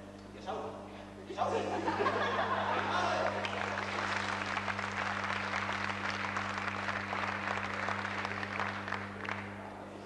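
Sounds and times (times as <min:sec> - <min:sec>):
low electrical hum: 0:00.0 - 0:10.0
audience applauding: 0:03.2 - 0:09.6.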